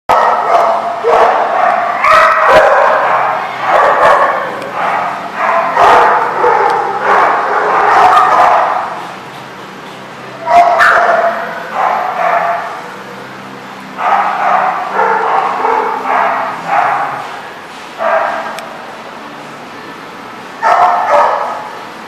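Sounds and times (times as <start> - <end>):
dogs barking and yipping: 0.1 - 18.6, 20.6 - 21.8.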